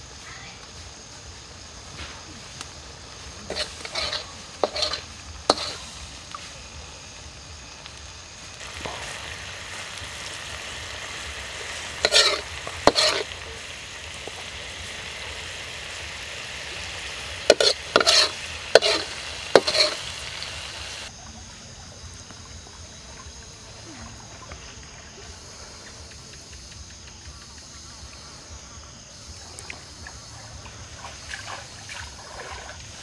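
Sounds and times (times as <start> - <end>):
sauce sizzling in a wok: 0.0 - 21.1
metal ladle scraping a wok: 3.5 - 6.0, 11.8 - 14.8, 16.6 - 21.1.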